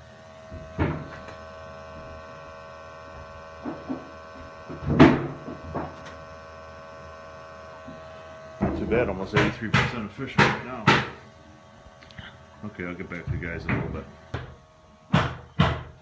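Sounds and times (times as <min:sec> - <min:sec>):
steam boiler humming: 0:00.0 - 0:16.0
sharp knocks and thumps: 0:00.5 - 0:01.3, 0:03.6 - 0:06.0, 0:08.6 - 0:11.2, 0:13.3 - 0:16.0.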